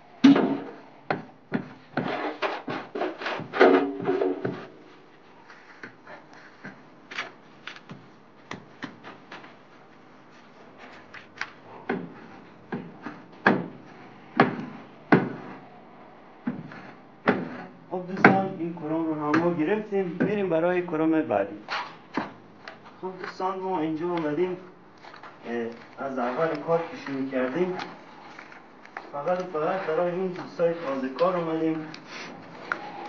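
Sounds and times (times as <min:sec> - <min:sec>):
straightedge scraping and knocking on wall: 0:00.3 - 0:04.9, 0:10.9 - 0:15.7, 0:16.4 - 0:20.4.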